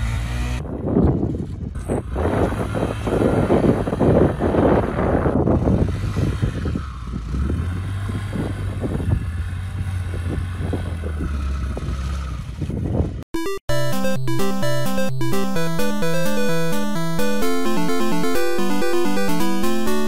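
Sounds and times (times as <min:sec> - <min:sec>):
chiptune music: 0:13.3 - 0:20.0.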